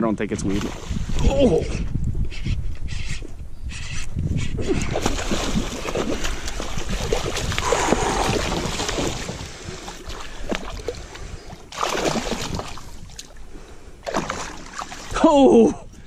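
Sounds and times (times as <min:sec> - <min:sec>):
fish splashing at the surface: 0:04.9 - 0:11.0, 0:11.7 - 0:13.1, 0:14.0 - 0:15.2.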